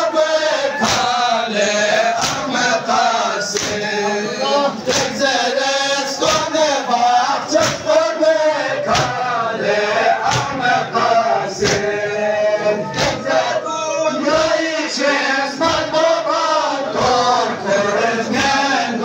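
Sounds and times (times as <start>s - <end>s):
men chanting a lament: 0.0s - 19.0s
hands slapping chests: 0.8s - 1.1s, 2.2s - 2.5s, 3.5s - 3.8s, 4.9s - 5.2s, 6.2s - 6.5s, 7.6s - 7.9s, 8.9s - 9.2s, 10.2s - 10.6s, 11.6s - 11.9s.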